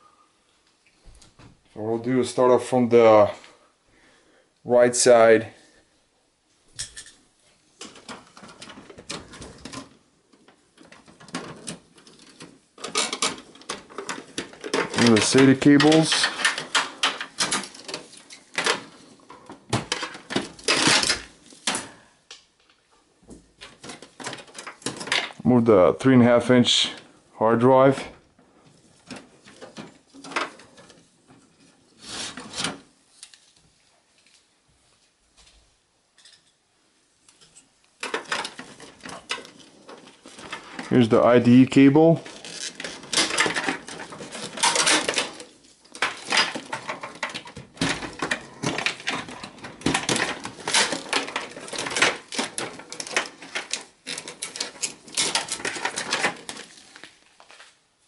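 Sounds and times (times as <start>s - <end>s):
cable scraping metal chassis: 10.8s - 21.4s, 38.1s - 57.0s.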